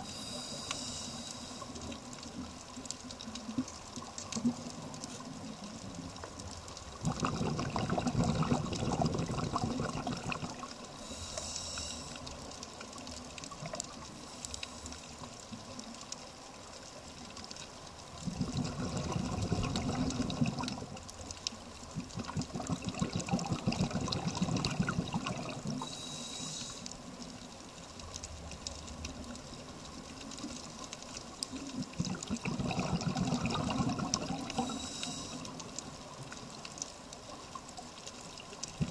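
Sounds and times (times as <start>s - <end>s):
regulator inhalation hiss: 0.0s - 1.9s, 10.9s - 12.4s, 25.8s - 27.0s, 34.5s - 35.6s
faint steady crackling: 0.0s - 38.9s
exhaled bubbles underwater: 3.3s - 11.2s, 18.0s - 26.8s, 28.9s - 36.6s, 38.3s - 38.9s.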